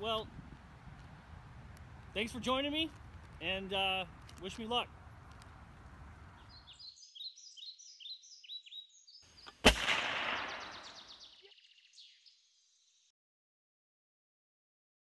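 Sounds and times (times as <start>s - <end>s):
birds chirping: 3.4s - 13.1s
loud gunshot: 9.6s - 11.1s.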